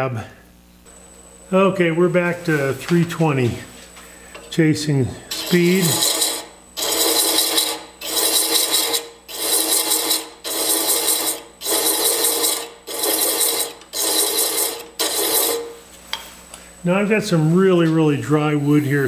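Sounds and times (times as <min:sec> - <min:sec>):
lathe humming: 0:00.9 - 0:15.8
thread chaser rasping on wood: 0:05.3 - 0:15.8.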